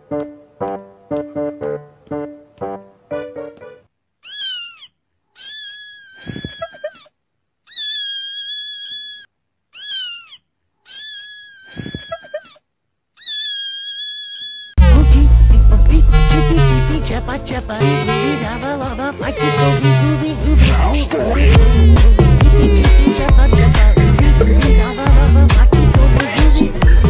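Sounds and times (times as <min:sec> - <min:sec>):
plucked background music: 0:00.0 - 0:03.9, 0:14.8 - 0:27.0
kitten meowing: 0:04.2 - 0:06.8, 0:07.7 - 0:12.2, 0:13.2 - 0:14.8.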